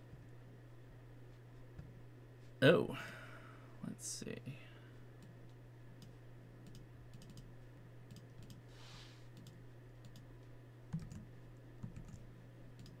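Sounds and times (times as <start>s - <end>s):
steady low hum: 0.0s - 13.0s
computer keyboard typing: 6.0s - 7.5s, 8.1s - 8.6s, 10.9s - 12.2s.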